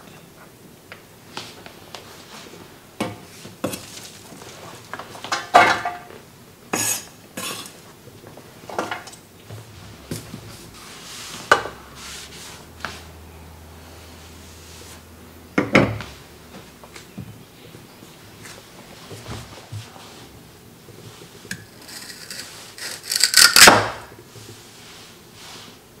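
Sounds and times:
cloth rubbing board: 9.6 - 13.3, 14.1 - 15.1.

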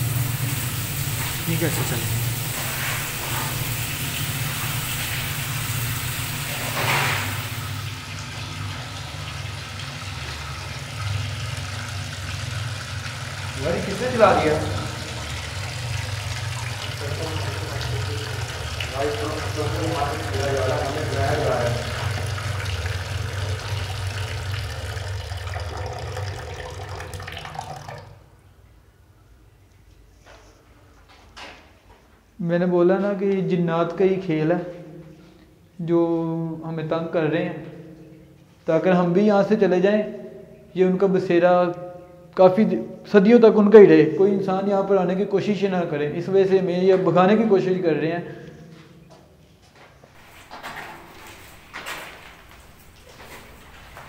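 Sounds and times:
tap water running: 0.0 - 28.4, 50.1 - 54.0.

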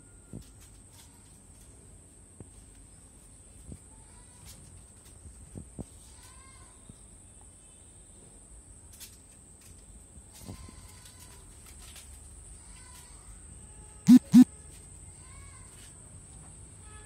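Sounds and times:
faint bird-like chirps: 14.1 - 14.4.

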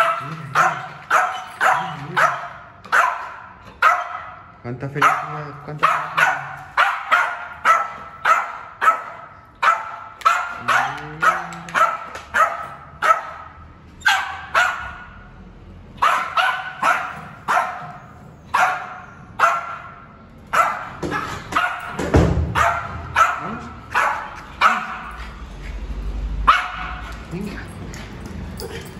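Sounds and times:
small dog yapping: 0.0 - 4.3, 22.6 - 25.2.

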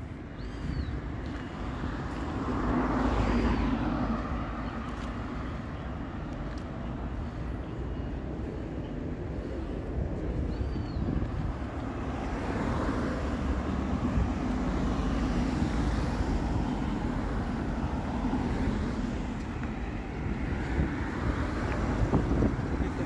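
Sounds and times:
street traffic noise: 0.0 - 23.0.

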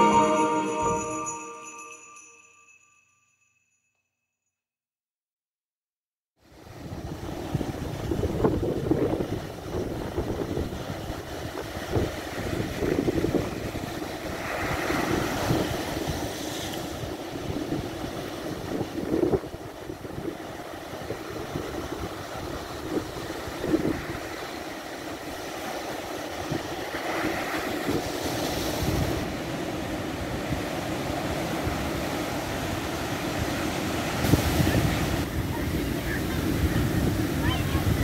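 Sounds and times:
sea waves washing ashore: 6.4 - 38.0
wind buffeting microphone: 6.7 - 16.3, 30.1 - 38.0.

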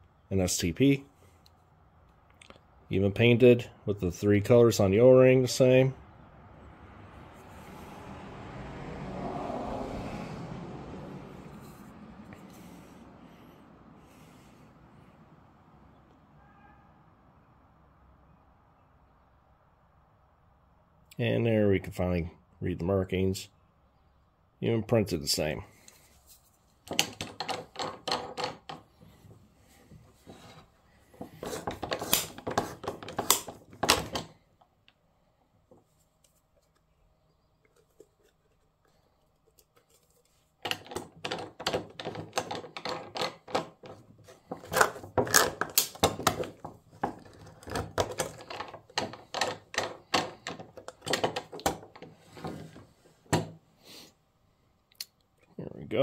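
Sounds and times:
oil filter cutter clicking and scraping: 30.2 - 34.7, 37.6 - 52.8.

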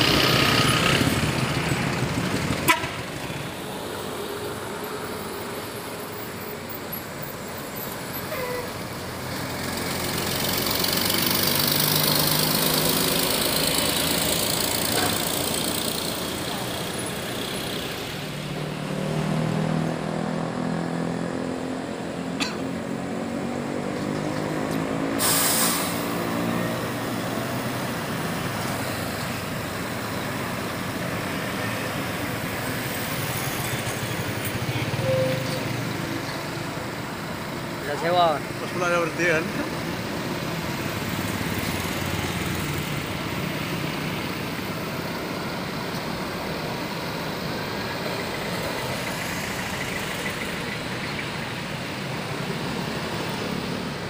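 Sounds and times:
coach diesel engine pulling: 0.0 - 18.8, 23.8 - 54.0
truck passing: 0.0 - 54.0
sharp air hiss: 25.1 - 26.2.

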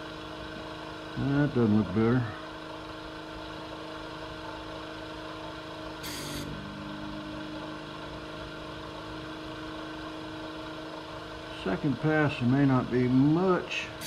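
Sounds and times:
vacuum pump humming: 0.0 - 14.0
air hissing into nozzle: 6.0 - 6.5.

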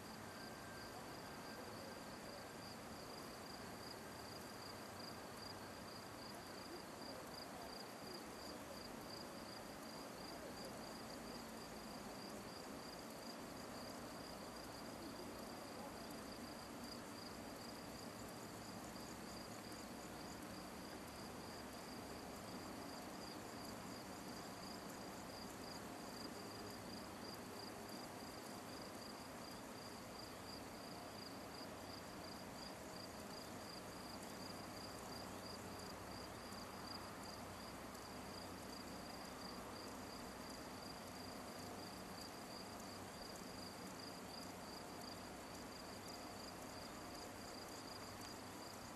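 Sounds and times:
soft outdoor hiss: 0.0 - 48.9.

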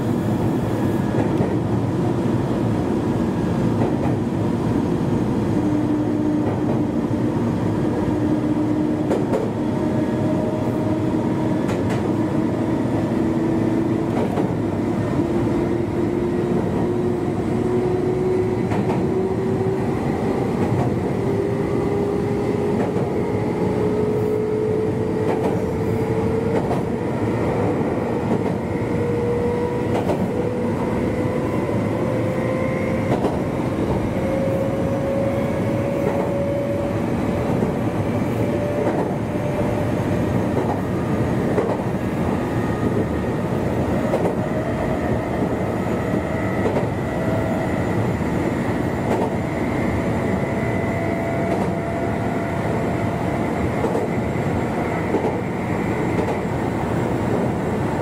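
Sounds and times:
train wheels rumbling on rails: 0.0 - 58.0
rail clicks: 1.1 - 1.7, 3.8 - 4.3, 9.0 - 9.9, 11.3 - 12.5, 13.6 - 15.4, 18.6 - 21.9, 22.6 - 23.8, 24.9 - 31.2, 33.0 - 35.0, 35.8 - 43.1, 43.8 - 47.6, 49.0 - 57.9
train drive whine rising: 14.8 - 58.0.

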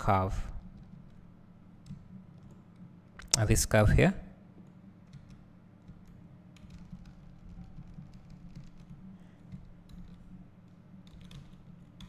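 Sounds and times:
keyboard and mouse clicking: 5.0 - 12.0.

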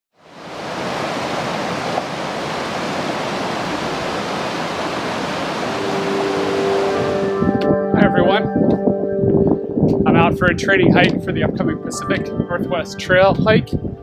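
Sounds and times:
stream rushing over rocks: 0.2 - 7.3
harmonium music: 5.8 - 8.1.

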